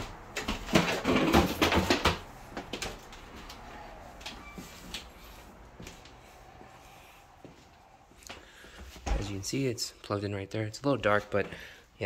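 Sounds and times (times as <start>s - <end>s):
footsteps on hardwood floor: 0.0s - 9.4s.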